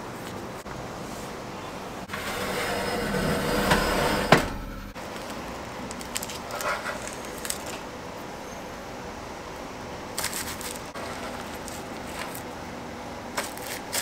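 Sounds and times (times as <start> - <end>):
metal tray sliding into oven: 2.1 - 5.0.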